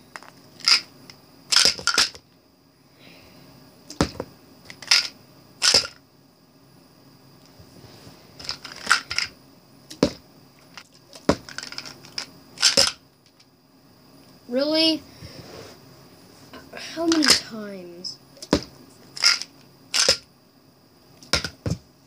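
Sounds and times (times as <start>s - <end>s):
plastic bottles knocking and clattering: 1.5s - 2.2s, 8.4s - 9.3s, 10.0s - 10.2s, 10.8s - 13.0s, 17.1s - 17.4s, 18.4s - 20.2s, 21.3s - 21.8s.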